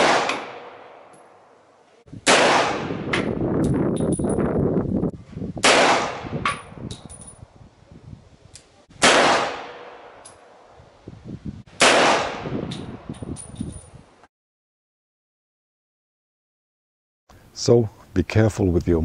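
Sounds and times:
pistol shots with echo: 0.0s - 1.1s, 2.2s - 3.3s, 5.6s - 6.7s, 9.0s - 10.3s, 11.8s - 12.5s
light metallic clinks: 3.6s - 4.5s, 6.9s - 7.5s, 12.8s - 14.0s.

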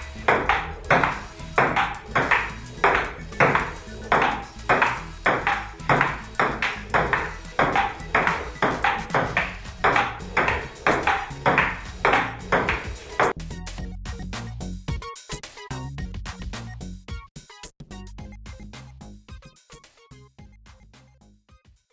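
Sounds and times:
background music: 0.0s - 21.6s
table tennis ball clicks: 0.2s - 13.3s.

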